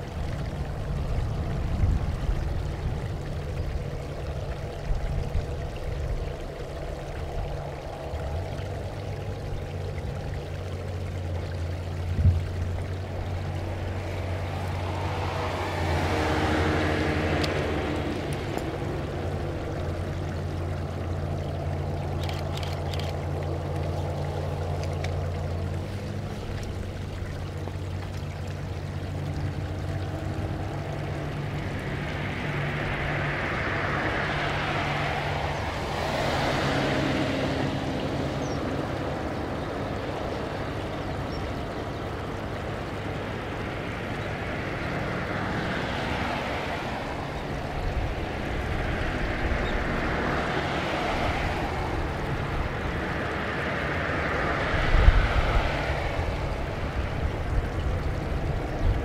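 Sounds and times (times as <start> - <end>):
jet engines rushing: 12.0 - 26.8, 29.3 - 59.0.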